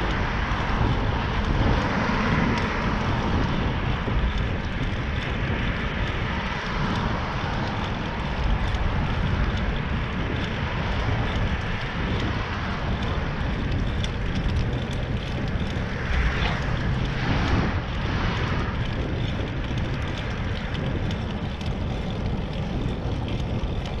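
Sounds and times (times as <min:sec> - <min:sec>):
bicycle tyres rolling on asphalt: 0:00.0 - 0:24.0
wind rush on microphone: 0:00.0 - 0:24.0.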